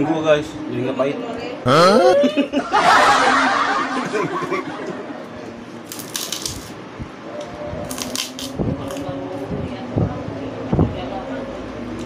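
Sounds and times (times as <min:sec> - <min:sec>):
people laughing together: 0:01.8 - 0:05.4.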